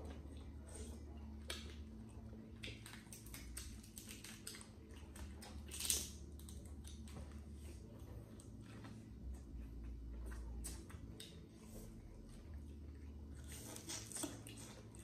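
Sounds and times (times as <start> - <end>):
chewing: 0.0 - 15.0.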